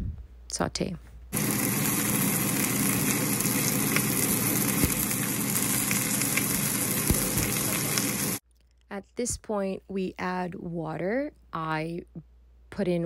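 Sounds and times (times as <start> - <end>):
food sizzling in a pot: 1.4 - 8.4.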